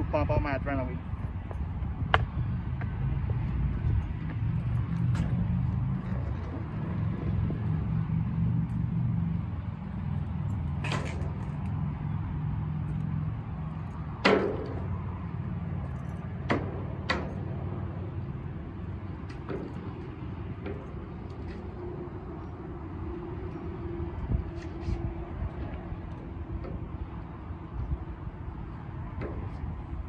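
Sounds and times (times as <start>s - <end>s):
skateboard wheels rolling on concrete: 1.3s - 11.7s.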